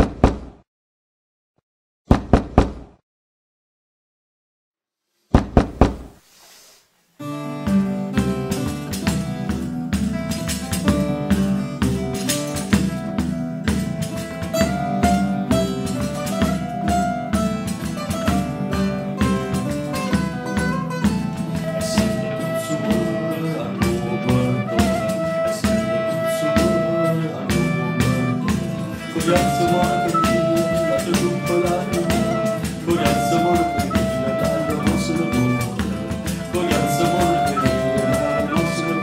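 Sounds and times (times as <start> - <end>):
quick knocks: 0.0 - 0.6, 2.1 - 3.0, 5.3 - 6.2
folk tune on guitar and mandolin: 7.2 - 39.0.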